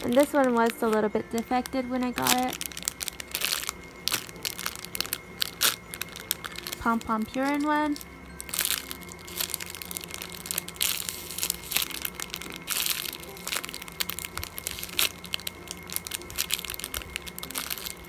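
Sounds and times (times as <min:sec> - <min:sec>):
plastic packaging crinkling: 0:00.0 - 0:18.0.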